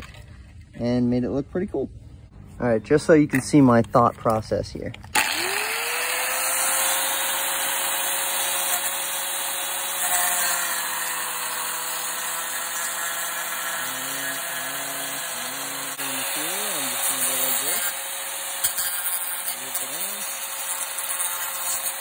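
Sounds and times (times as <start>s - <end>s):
angle grinder grinding metal: 5.1s - 22.0s.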